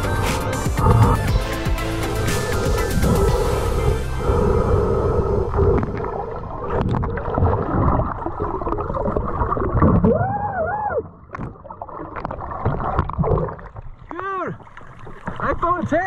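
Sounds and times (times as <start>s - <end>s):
underwater gurgling and bubbling: 0.0s - 15.6s
underwater clicks and knocks: 5.7s - 8.2s, 11.2s - 16.0s.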